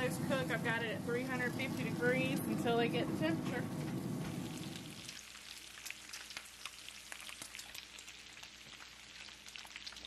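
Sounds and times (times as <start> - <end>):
bacon sizzling and popping: 3.9 - 10.0.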